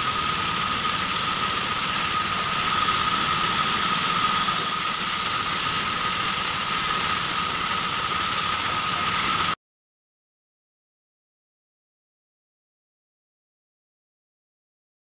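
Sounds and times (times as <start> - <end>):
band saw whining: 0.0 - 9.6.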